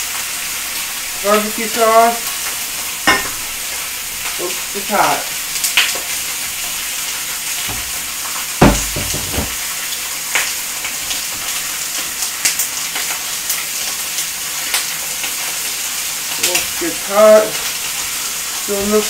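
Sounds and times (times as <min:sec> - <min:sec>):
chicken sizzling in a pan: 0:00.0 - 0:19.0
loud knock: 0:07.7 - 0:08.0, 0:08.6 - 0:09.6.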